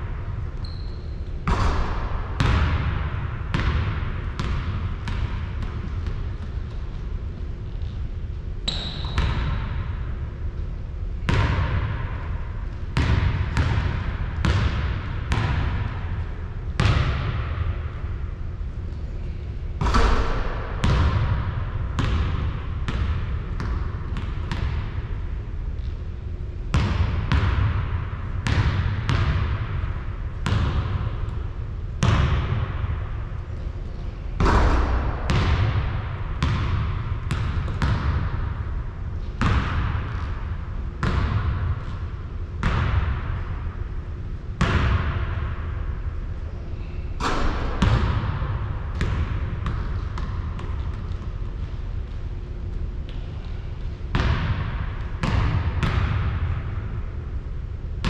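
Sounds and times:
basketball bouncing on hard floor: 0:00.7 - 0:07.0, 0:11.2 - 0:12.1, 0:13.0 - 0:15.9, 0:16.8 - 0:17.6, 0:19.8 - 0:25.0, 0:26.7 - 0:29.8, 0:30.4 - 0:31.1, 0:34.4 - 0:38.4, 0:39.3 - 0:40.4, 0:41.0 - 0:42.0, 0:42.6 - 0:43.2, 0:44.6 - 0:45.2, 0:47.2 - 0:52.2, 0:54.1 - 0:56.3.

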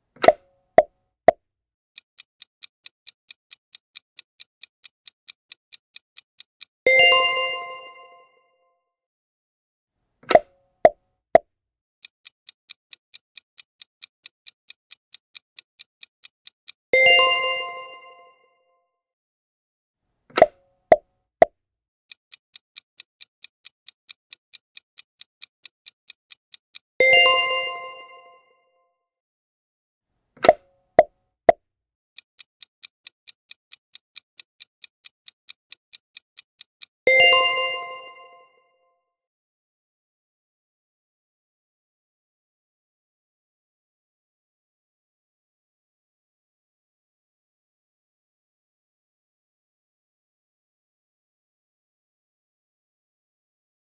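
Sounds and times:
bright bell-like chime: 0:07.0 - 0:08.3
countdown timer ticking: 0:16.0 - 0:18.2.

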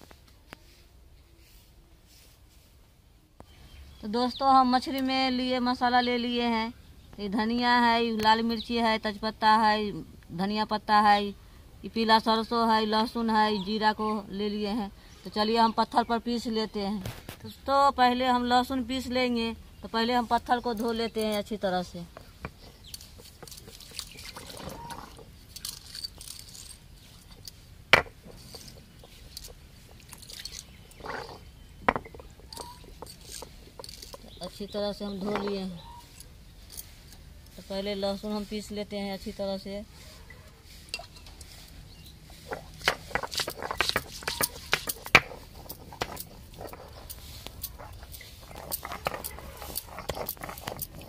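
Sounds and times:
gritty stone scraping: 0:22.1 - 0:37.7, 0:42.1 - 0:51.0
stone clicking on stone: 0:22.2 - 0:34.4, 0:42.5 - 0:51.0
stone knocking on stone: 0:27.9 - 0:28.4, 0:31.0 - 0:33.1, 0:35.3 - 0:35.6, 0:42.5 - 0:46.8.

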